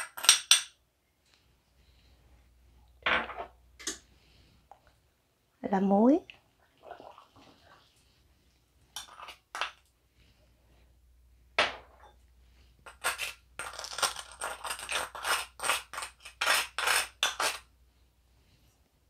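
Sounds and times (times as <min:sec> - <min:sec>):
metal spoon clinking and scraping: 0:09.0 - 0:09.7, 0:12.8 - 0:17.6.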